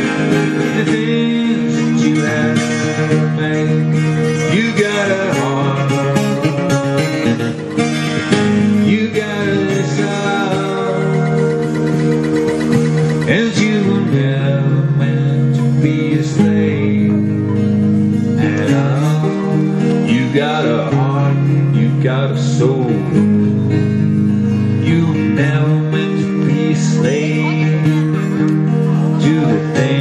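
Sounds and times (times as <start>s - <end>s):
acoustic guitar strumming: 0.0s - 30.0s.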